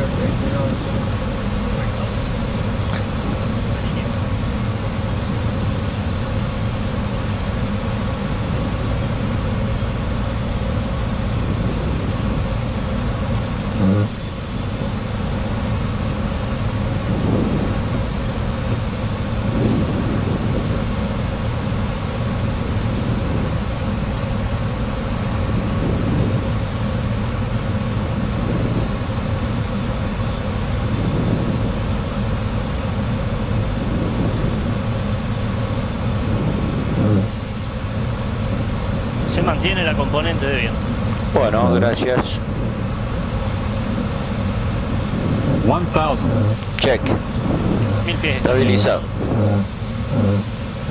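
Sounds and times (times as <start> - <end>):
airflow and jet engines: 0.0 - 50.9
windshield wipers sweeping: 11.1 - 20.8, 30.3 - 50.9.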